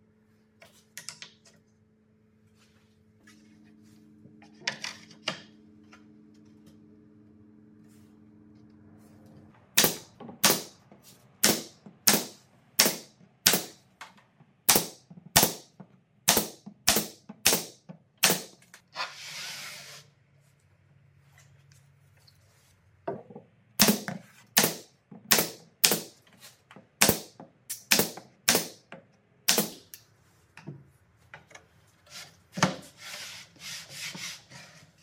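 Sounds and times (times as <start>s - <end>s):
nail gun firing into plywood: 9.8s - 10.8s, 11.4s - 13.8s, 14.7s - 15.7s, 16.3s - 18.6s, 23.8s - 26.2s, 27.0s - 28.8s, 29.5s - 29.9s.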